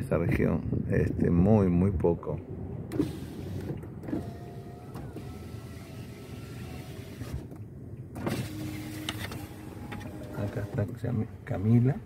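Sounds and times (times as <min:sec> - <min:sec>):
low wind rumble: 0:00.0 - 0:12.0
electric window motor whirring: 0:02.9 - 0:11.0.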